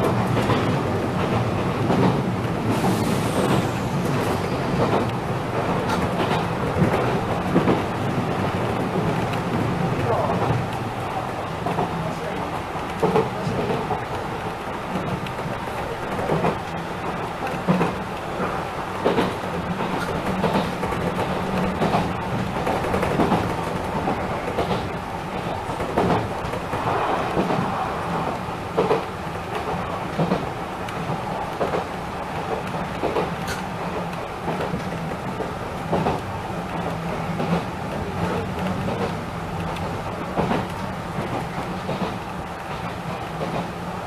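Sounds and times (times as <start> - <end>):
electric train running noise: 0.0 - 11.9
rail joint clicks: 0.0 - 44.0
train wheels rumbling on rails: 0.0 - 44.0.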